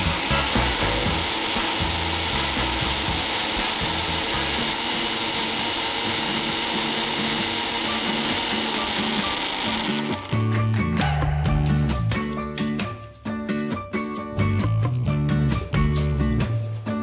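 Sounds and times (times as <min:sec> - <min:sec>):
mixer grinder grinding spices: 0:00.0 - 0:11.0.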